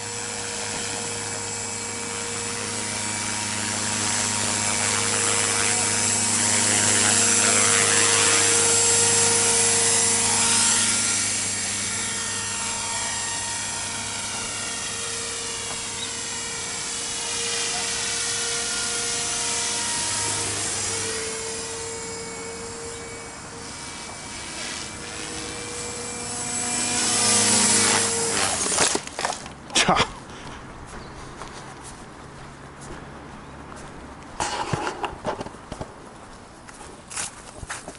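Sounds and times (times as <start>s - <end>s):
rc helicopter rotor whine: 0.0s - 29.6s.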